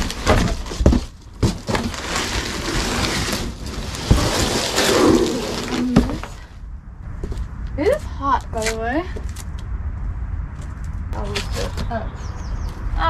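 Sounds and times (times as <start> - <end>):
cardboard panels thudding: 0.0 - 5.0
cardboard scraping and rustling: 0.0 - 6.6.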